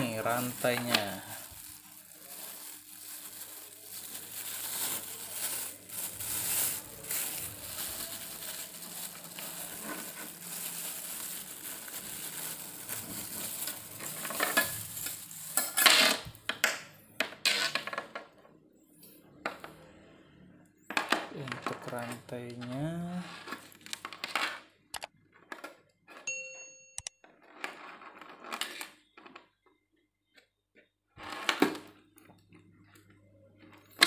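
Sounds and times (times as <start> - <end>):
plastic bag crinkling: 0.0 - 16.3.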